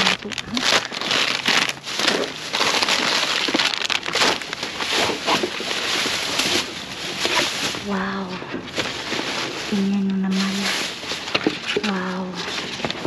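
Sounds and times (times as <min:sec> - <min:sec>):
plastic bags rustling and crinkling: 0:00.0 - 0:13.0.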